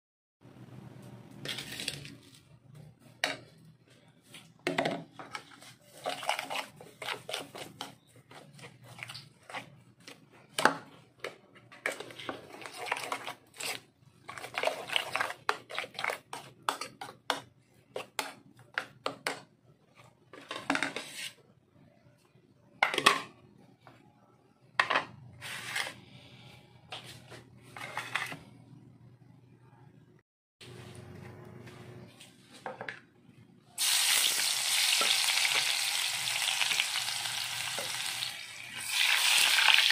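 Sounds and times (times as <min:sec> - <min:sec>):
utensil scraping plastic dishes: 0:04.7 - 0:21.4, 0:27.6 - 0:28.6.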